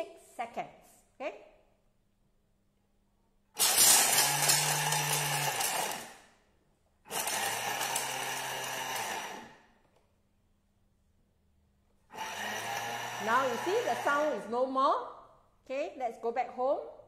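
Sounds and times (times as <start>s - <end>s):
food processor grinding: 3.6s - 6.3s, 7.1s - 9.7s, 12.1s - 14.5s.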